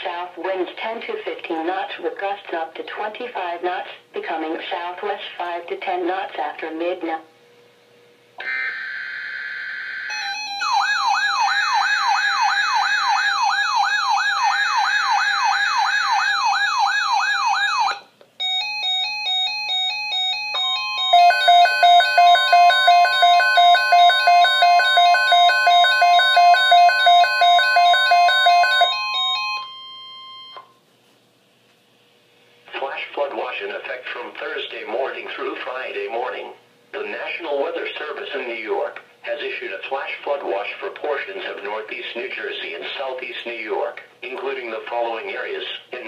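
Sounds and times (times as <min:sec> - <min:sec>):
warbling siren alarm: 0:08.4 - 0:30.7
steady attention tone: 0:17.9 - 0:30.8
rapid electronic beeping: 0:21.0 - 0:29.4.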